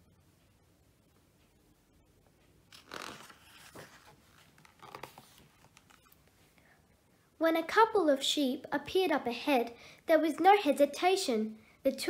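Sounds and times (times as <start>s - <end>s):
book pages turning: 2.7s - 6.2s.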